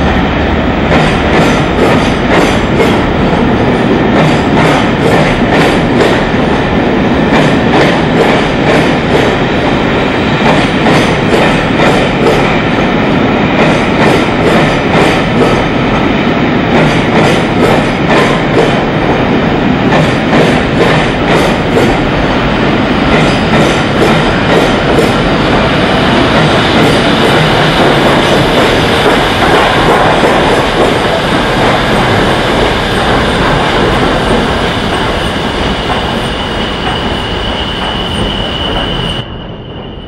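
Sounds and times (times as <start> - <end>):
steam locomotive exhaust beats: 0.0 - 39.3
train rumbling past: 0.0 - 40.0
high wheel squeal: 35.6 - 40.0.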